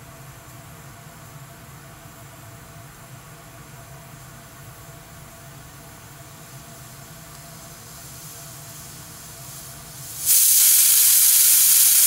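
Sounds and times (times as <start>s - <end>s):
pressure cooker steam hissing: 7.5s - 12.0s.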